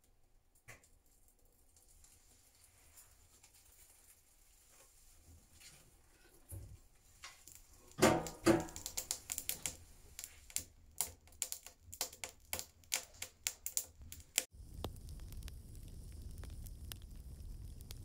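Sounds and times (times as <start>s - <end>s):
firewood crackling and popping: 6.5s - 18.0s
metal stove door knocking: 8.0s - 8.9s.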